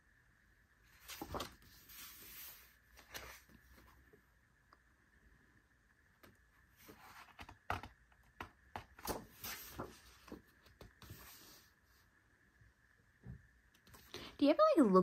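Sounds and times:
book pages rustling: 0:00.9 - 0:04.2, 0:06.8 - 0:12.0.

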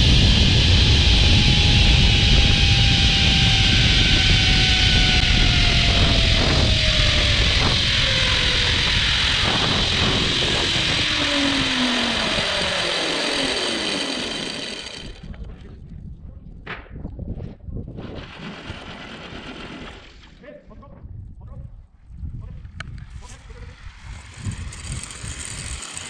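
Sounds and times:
zipline trolley on cable: 0:00.0 - 0:15.6, 0:22.8 - 0:26.0
pulley whine: 0:00.0 - 0:15.7, 0:22.9 - 0:26.0
wind rush: 0:00.0 - 0:20.0, 0:21.0 - 0:26.0.

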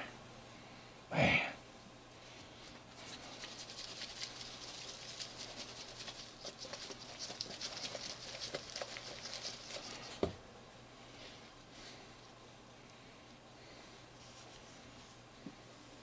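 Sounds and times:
fish rustling in flour: 0:02.9 - 0:10.2.

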